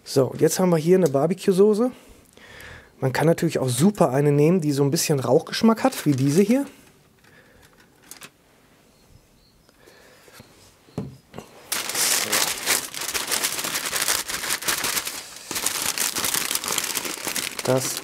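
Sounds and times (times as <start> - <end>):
aluminium foil crinkling: 5.7 - 6.7, 7.6 - 8.4, 11.7 - 18.0.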